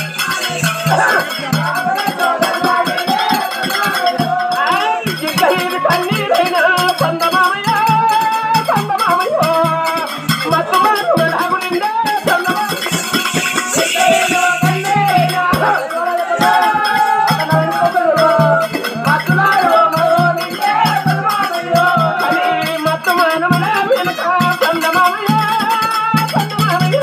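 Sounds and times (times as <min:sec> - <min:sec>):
ankle bells jingling: 0:00.0 - 0:27.0
folk dance music: 0:12.3 - 0:16.6.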